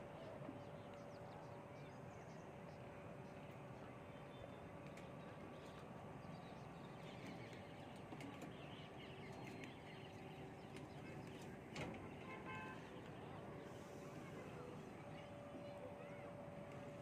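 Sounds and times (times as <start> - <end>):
low background hum: 0.0 - 17.0
faint bird chirps: 12.5 - 17.0.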